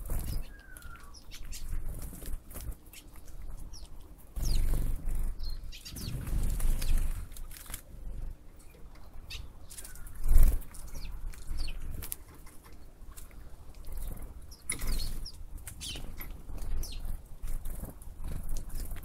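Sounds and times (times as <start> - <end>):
small birds chirping: 0.0 - 19.0
wind on microphone: 4.4 - 7.3.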